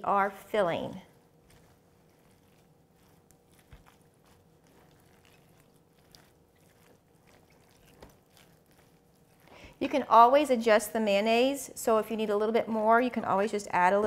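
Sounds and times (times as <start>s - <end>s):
spatula stirring filling in bowl: 0.4s - 10.8s.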